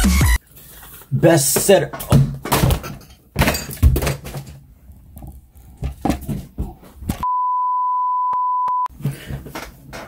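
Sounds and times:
steady test tone beep: 7.2s - 8.9s.

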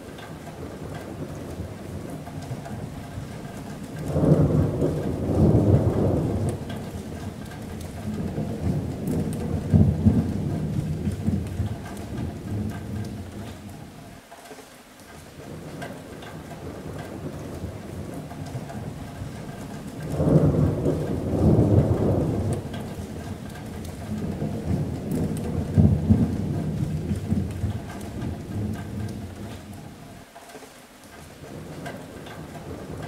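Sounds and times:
steady rain: 0.0s - 33.0s
thunder rumbling: 0.1s - 14.0s, 15.5s - 30.1s, 31.5s - 33.0s.

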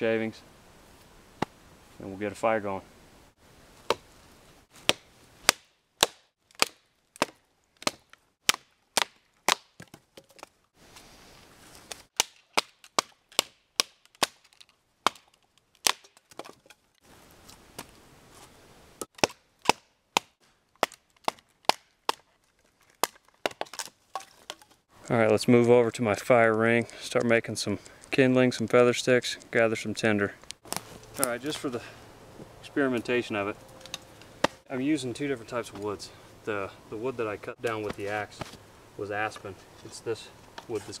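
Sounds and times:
wood being split: 4.8s - 10.6s, 11.8s - 16.9s, 19.0s - 24.8s.

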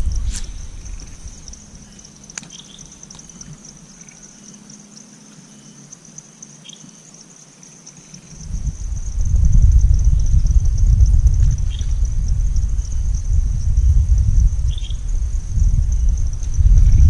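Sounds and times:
insect chorus chirring: 0.0s - 17.0s.

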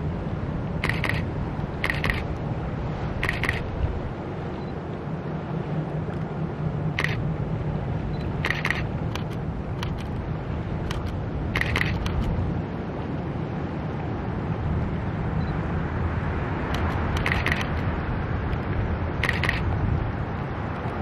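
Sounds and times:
short sharp clicks: 0.8s - 1.2s.

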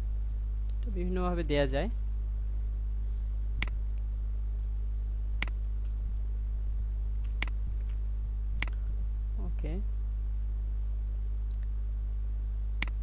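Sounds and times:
low electrical hum: 0.0s - 13.0s
computer mouse clicks: 12.8s - 13.0s.

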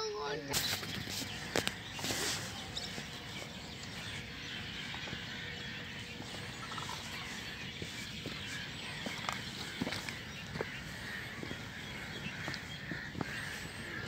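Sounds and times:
distant bird calls: 0.0s - 14.0s
footsteps on sand and pebbles: 0.4s - 14.0s.

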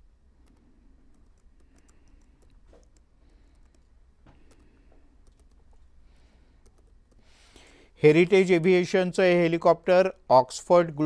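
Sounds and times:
low steady hum: 0.0s - 11.0s
faint irregular clicks: 0.3s - 7.7s.

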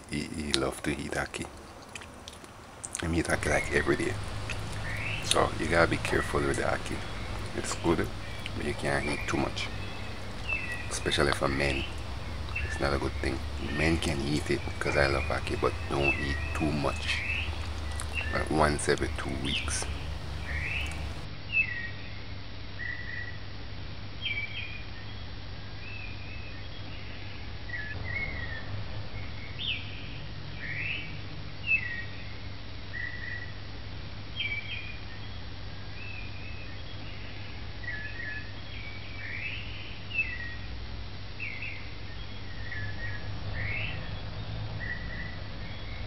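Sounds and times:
steady low hum: 0.0s - 21.3s
birds chirping and calling: 2.8s - 21.3s.

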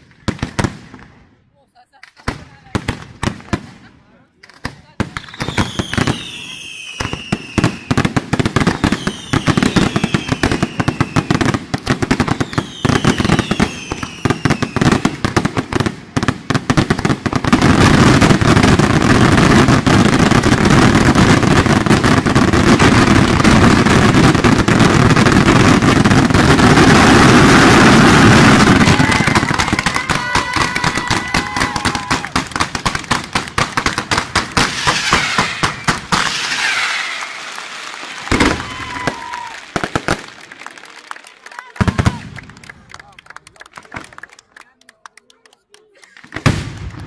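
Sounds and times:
fireworks bangs and crackle: 0.0s - 44.4s, 45.8s - 47.0s
whistling fireworks shells: 8.6s - 11.3s, 12.4s - 14.8s, 33.7s - 39.9s.

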